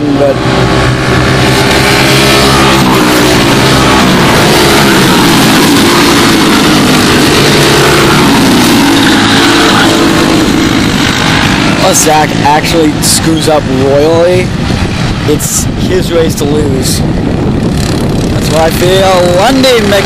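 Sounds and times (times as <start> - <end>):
racing kart engines: 0.0 - 20.0.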